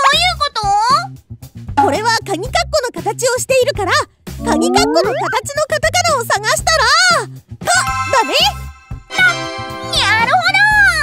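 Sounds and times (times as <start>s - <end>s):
cartoon sliding whistle: 4.4s - 5.4s
children's background music: 4.4s - 5.5s, 7.7s - 11.0s.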